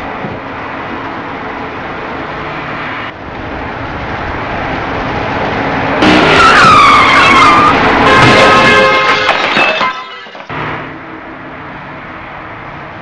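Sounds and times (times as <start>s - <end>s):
traffic noise: 0.0s - 13.0s
car tyres screeching: 2.2s - 11.0s
loud harsh noise: 6.0s - 11.4s.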